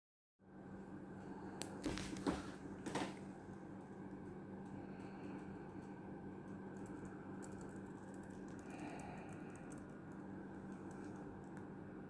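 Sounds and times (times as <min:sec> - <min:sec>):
laptop keys clicking: 0:03.5 - 0:11.6.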